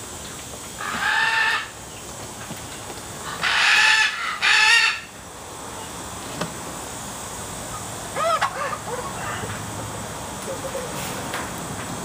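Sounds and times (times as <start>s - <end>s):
rooster calling: 0.8s - 1.8s, 3.4s - 5.2s.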